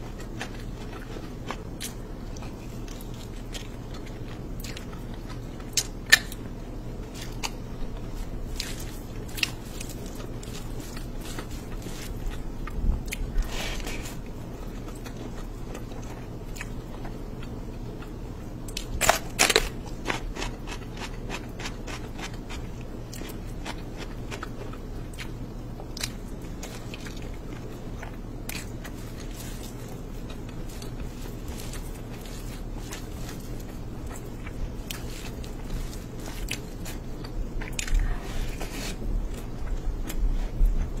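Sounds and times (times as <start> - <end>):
chewing and biting: 0.0 - 41.0
steady low hum: 0.0 - 41.0.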